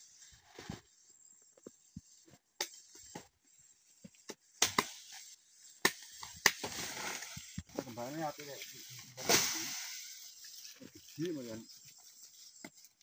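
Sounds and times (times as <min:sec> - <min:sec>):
machete chopping roots: 0:04.6 - 0:05.0.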